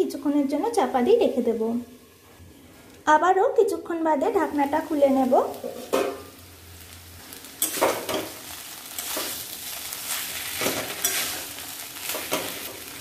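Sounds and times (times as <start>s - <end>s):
food sizzling: 0.0s - 13.0s
spoon scraping metal pan: 7.6s - 8.4s, 10.6s - 11.5s.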